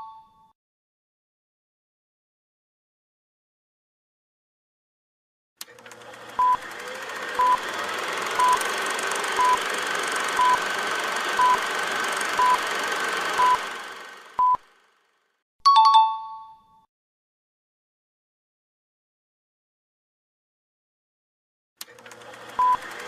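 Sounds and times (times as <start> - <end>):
short electronic beeps: 11.4 - 11.6, 12.4 - 12.6, 14.4 - 14.6.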